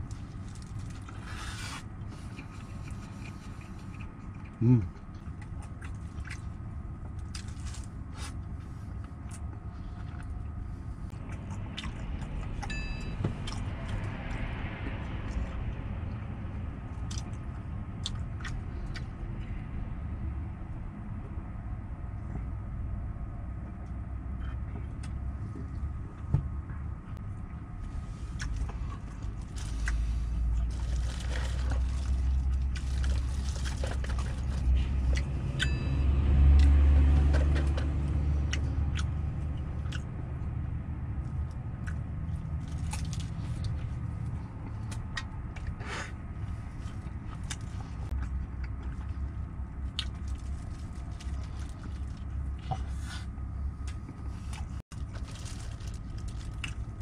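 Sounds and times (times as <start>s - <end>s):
crunching of food being eaten: 0.0s - 12.8s, 16.9s - 19.6s, 28.1s - 57.0s
low rumble of vehicle engines: 0.0s - 57.0s.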